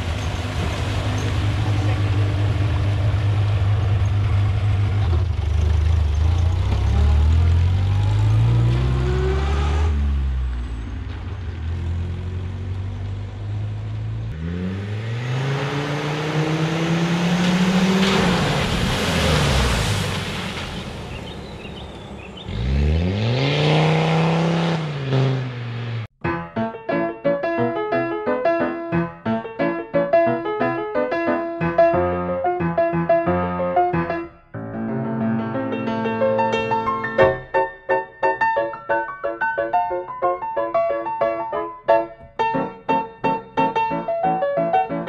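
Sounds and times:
piano music: 0.0s - 5.0s, 26.2s - 45.0s
cars accelerating past: 0.0s - 26.1s.

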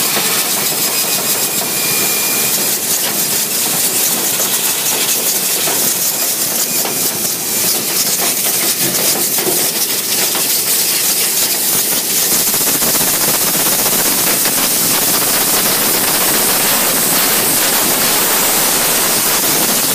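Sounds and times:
air rushing through duct: 0.0s - 19.9s.

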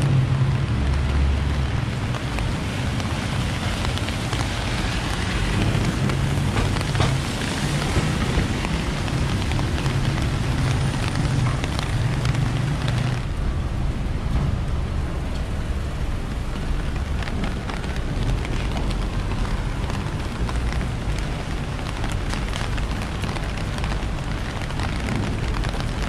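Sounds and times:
low traffic rumble: 0.0s - 26.0s
steady rain: 0.0s - 26.0s
tyres hissing on wet pavement: 0.0s - 26.0s
raindrop ticks: 0.1s - 13.6s, 14.2s - 26.0s.

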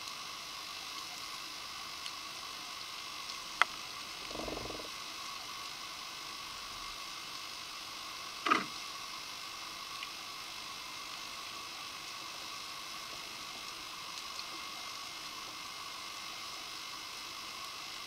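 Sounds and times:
underwater ambient hiss: 0.0s - 18.0s
crackling click: 3.6s - 4.9s.

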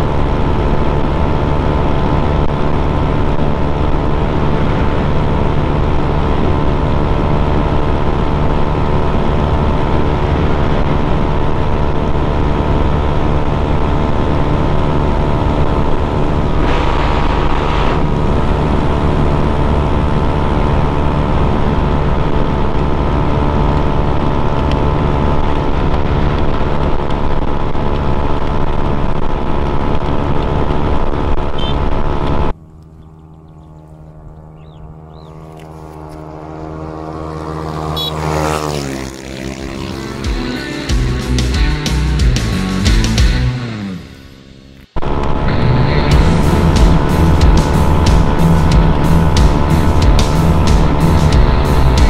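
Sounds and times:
wind rushing over microphone: 0.0s - 33.6s
scooter engine running: 0.0s - 52.0s.

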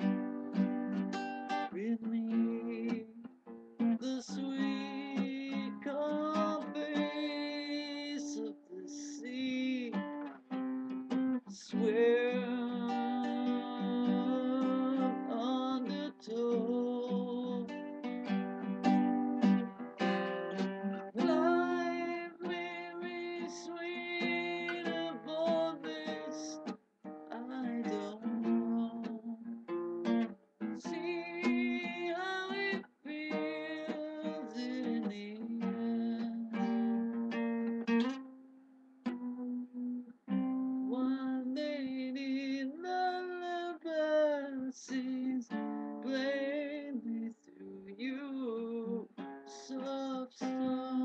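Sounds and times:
guitar melody over chords: 0.0s - 42.1s.

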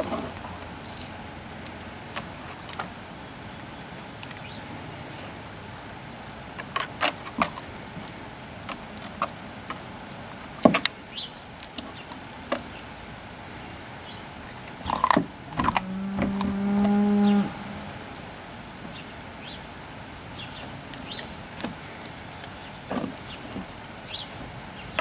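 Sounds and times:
dog gnawing a bone: 14.4s - 17.2s
cow mooing: 15.5s - 18.2s.

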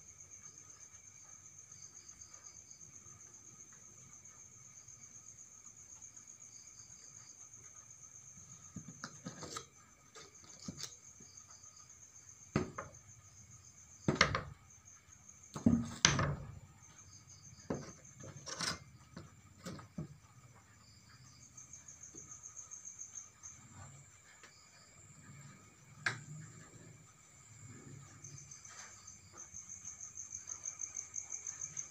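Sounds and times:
crickets chirping: 0.0s - 31.9s
sharp knocks and clatters: 12.4s - 13.3s, 14.0s - 14.8s, 15.4s - 20.6s.

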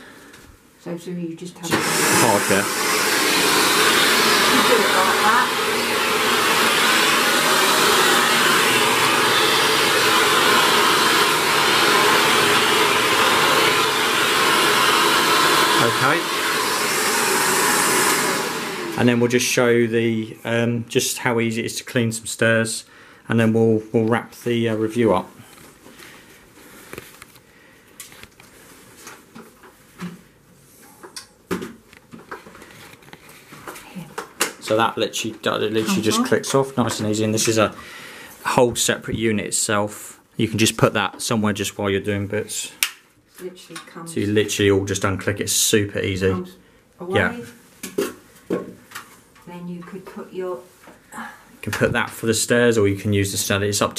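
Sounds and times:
upright vacuum cleaner running: 1.7s - 19.4s, 35.7s - 36.4s.

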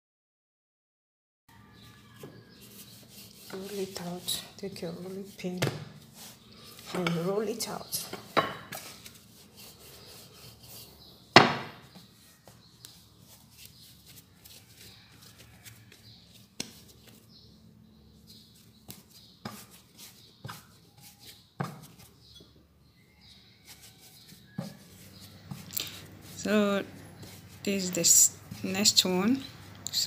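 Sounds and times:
dough rubbing on a board: 1.8s - 17.3s, 18.2s - 22.3s, 23.3s - 30.0s
rolling pin knocking: 11.3s - 12.0s.

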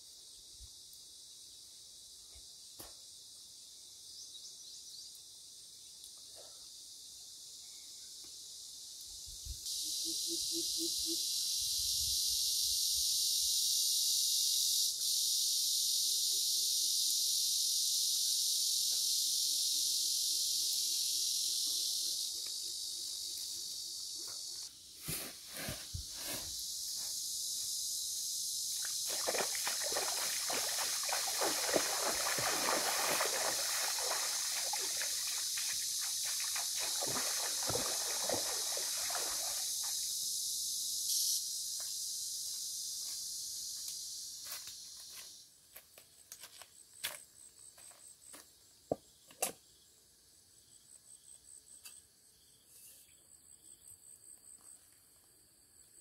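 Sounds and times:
crickets chirping: 0.0s - 56.0s
high hiss: 8.6s - 45.6s
water sloshing and trickling: 29.0s - 39.6s.

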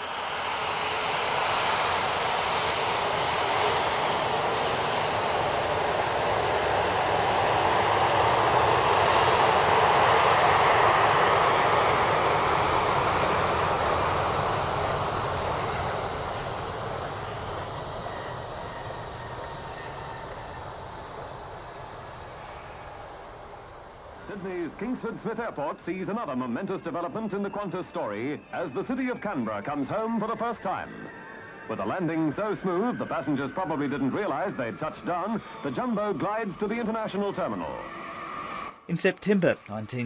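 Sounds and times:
jet airliner engine rush: 0.0s - 24.6s.

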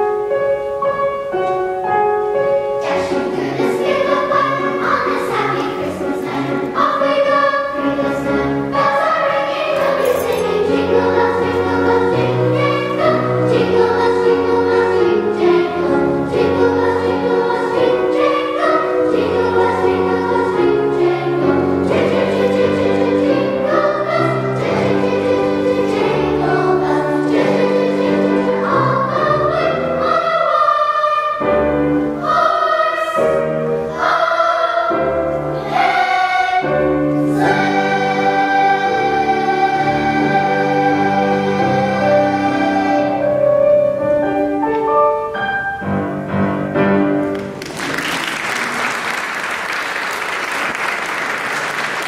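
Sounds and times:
piano accompaniment: 0.0s - 52.0s
girls' choir singing: 2.4s - 44.0s.

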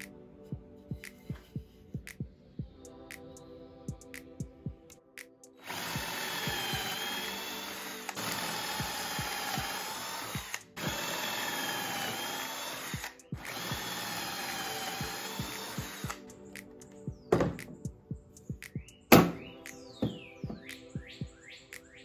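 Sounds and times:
power drill boring into wood: 5.6s - 16.2s.

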